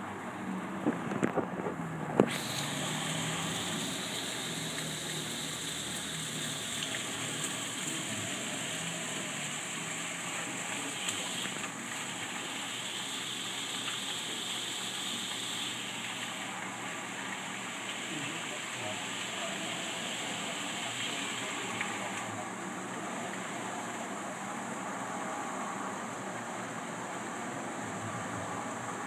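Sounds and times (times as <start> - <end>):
heavy hail and rain pouring: 2.4 - 24.8.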